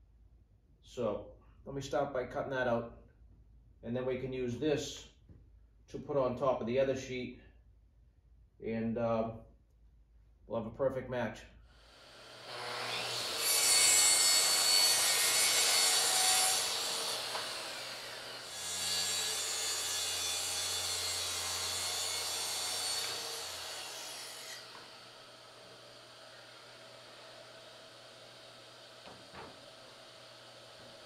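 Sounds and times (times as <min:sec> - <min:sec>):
track saw cutting plywood: 0:11.9 - 0:31.0.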